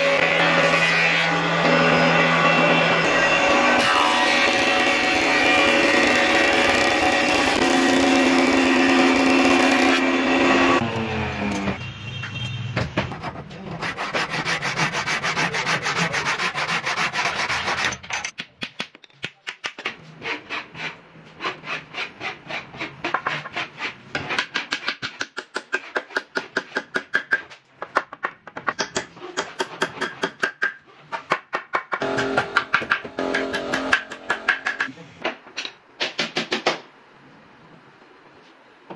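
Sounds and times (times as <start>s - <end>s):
hand saw cutting wood: 13.3s - 18.1s, 20.0s - 24.9s
hammer striking chisel: 24.2s - 34.9s.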